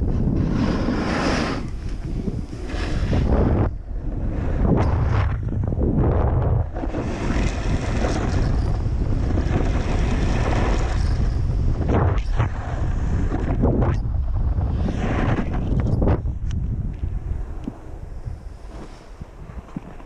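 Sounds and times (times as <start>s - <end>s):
wind buffeting microphone: 0.0s - 20.0s
hiss of sliding over snow: 0.4s - 3.4s, 18.3s - 19.7s.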